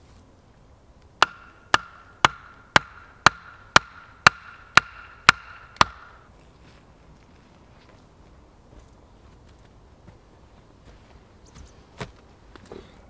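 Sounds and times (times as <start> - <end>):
axe knocking wooden pole: 1.2 - 6.2.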